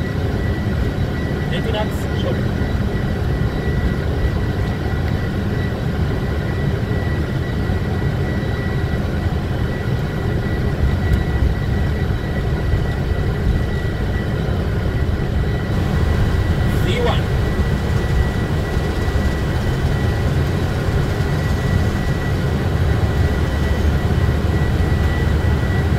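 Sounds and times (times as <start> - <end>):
jet engines and wheels rumbling: 0.0 - 25.9.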